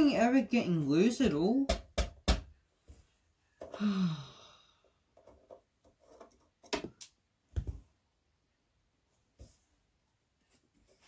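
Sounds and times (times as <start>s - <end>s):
person sighing: 3.6s - 4.9s.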